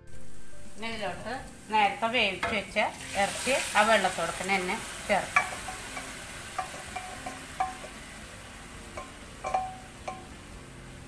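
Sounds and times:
pan sizzling: 0:00.0 - 0:11.0
spoon clinking on metal pot: 0:05.3 - 0:08.0, 0:08.9 - 0:10.4.

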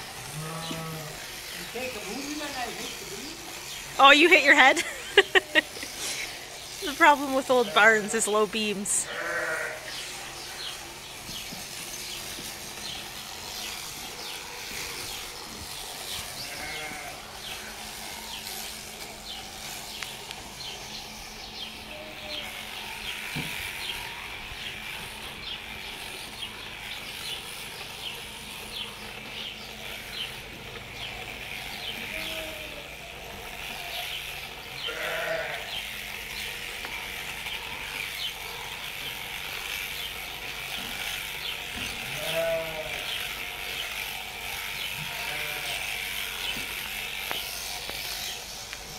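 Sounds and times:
shearing handpiece humming: 0:00.0 - 0:48.9
sheep bleating: 0:00.1 - 0:04.1, 0:07.4 - 0:08.2, 0:08.8 - 0:10.8, 0:16.1 - 0:18.7, 0:21.8 - 0:24.7, 0:31.6 - 0:36.1, 0:41.9 - 0:46.4.

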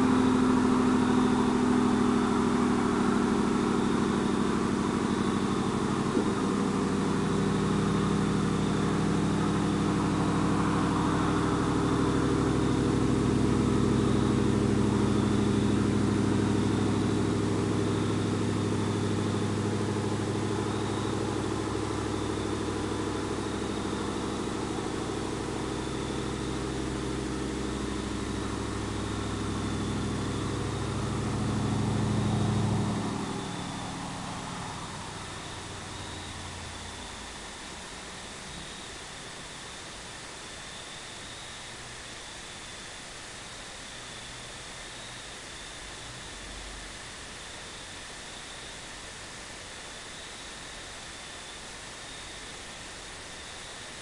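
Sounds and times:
truck engine idling: 0:00.0 - 0:37.8.

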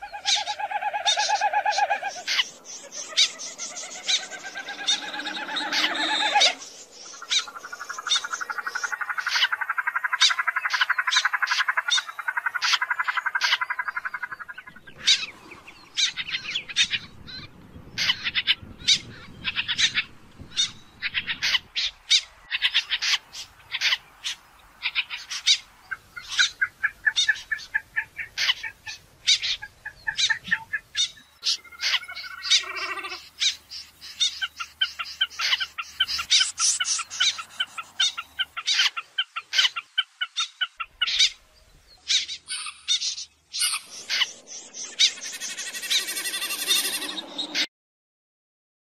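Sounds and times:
snipe calls: 0:00.0 - 0:41.4, 0:42.0 - 0:47.7.

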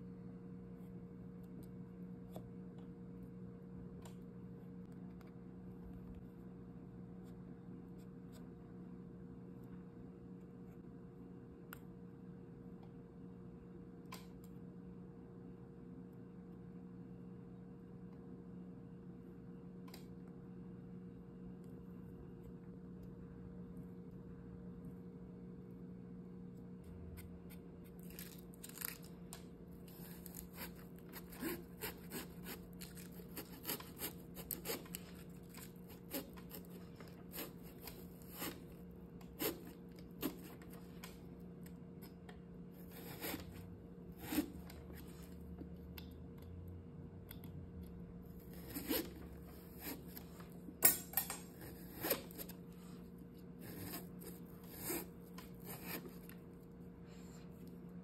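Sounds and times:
faint steady hum: 0:00.0 - 0:58.0
knife cutting pumpkin rind: 0:29.8 - 0:42.2, 0:42.8 - 0:45.5, 0:48.4 - 0:56.6.

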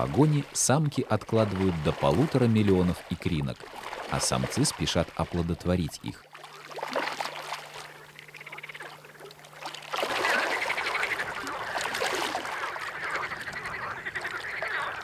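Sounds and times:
low steady hum: 0:00.0 - 0:15.0
dense chorus of animal calls: 0:10.3 - 0:15.0.

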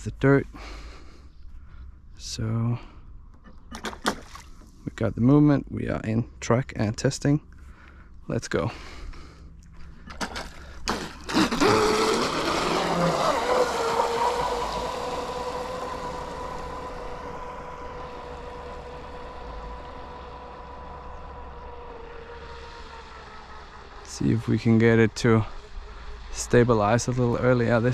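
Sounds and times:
water rushing: 0:10.2 - 0:27.9
electric motor high whine: 0:11.2 - 0:27.9.

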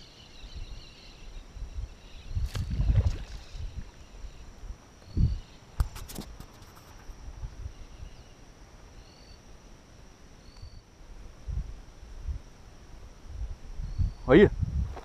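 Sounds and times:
faint bird chirps: 0:00.0 - 0:05.8, 0:09.0 - 0:09.5, 0:10.4 - 0:10.9, 0:13.8 - 0:14.4
insect buzz: 0:00.0 - 0:15.0.

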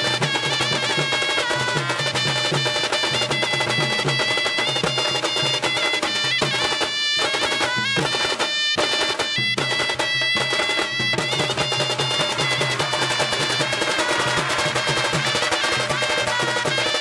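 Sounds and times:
double-reed pipe melody: 0:00.0 - 0:17.0
fast drumming on barrel drums: 0:00.0 - 0:17.0.

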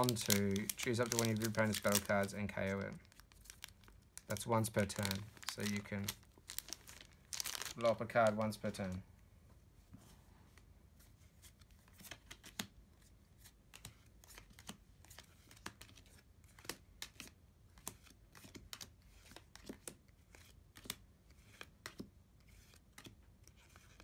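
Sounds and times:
trading cards flipping: 0:00.0 - 0:08.9, 0:11.5 - 0:12.7, 0:13.4 - 0:24.0.

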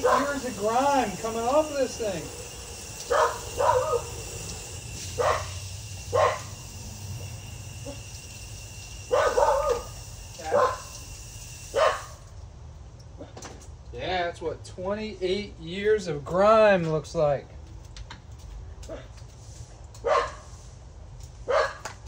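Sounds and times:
dog barking: 0:00.0 - 0:00.4, 0:03.0 - 0:04.2, 0:05.2 - 0:06.5, 0:09.1 - 0:10.9, 0:11.7 - 0:12.2, 0:20.0 - 0:20.5, 0:21.5 - 0:21.8.

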